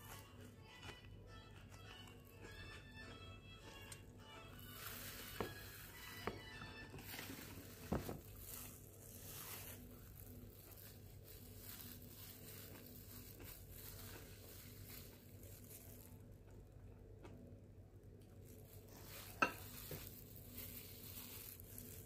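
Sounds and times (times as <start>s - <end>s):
plastic glove crinkling: 3.9s - 16.8s, 18.0s - 22.0s.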